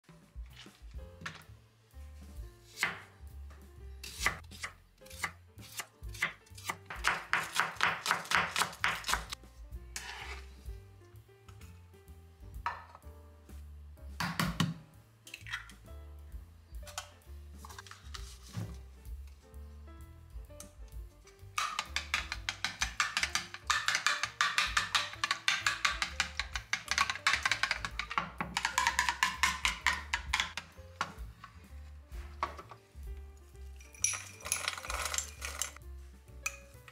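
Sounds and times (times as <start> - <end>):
knife chopping on wooden board: 4.0 - 9.4.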